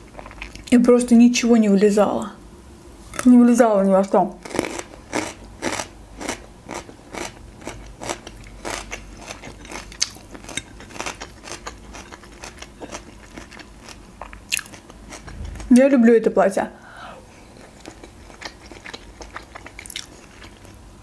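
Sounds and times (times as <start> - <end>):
person chewing food: 0.0 - 0.7, 4.4 - 15.7, 17.4 - 20.8.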